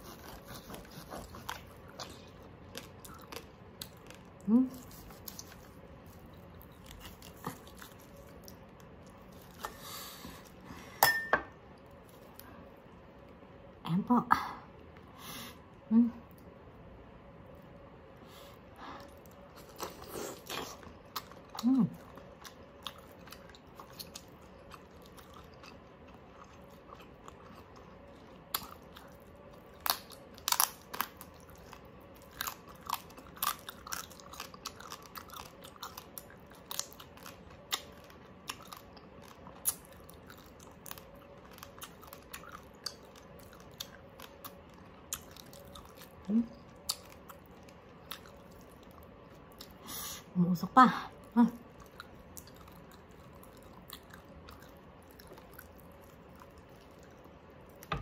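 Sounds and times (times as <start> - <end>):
wet chewing: 0.0 - 10.6, 19.0 - 49.8, 51.6 - 58.0
crunching crispy pork skin: 19.4 - 49.7.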